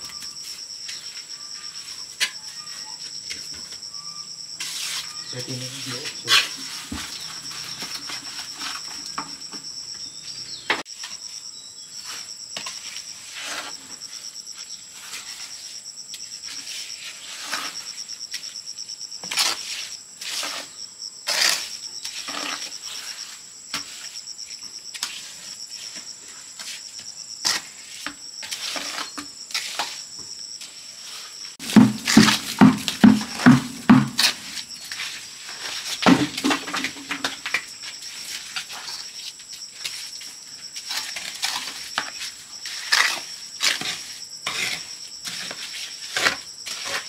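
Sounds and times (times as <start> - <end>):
insects chirring: 0.0 - 47.0.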